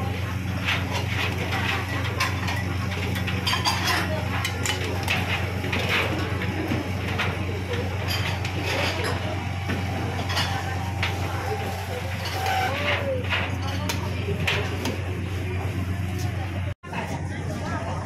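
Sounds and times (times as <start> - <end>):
dishes clinking on steel counter: 0.7 - 15.0.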